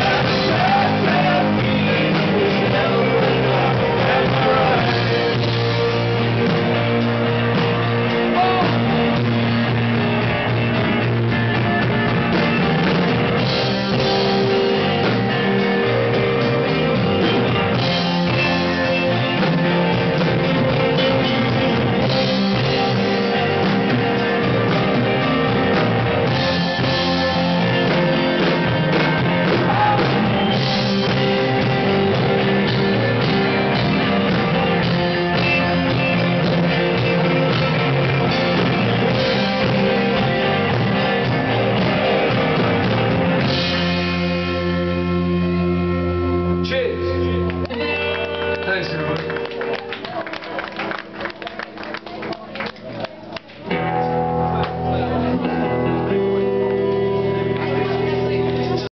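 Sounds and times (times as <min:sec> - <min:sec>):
live rock band playing: 0:00.0 - 0:58.9.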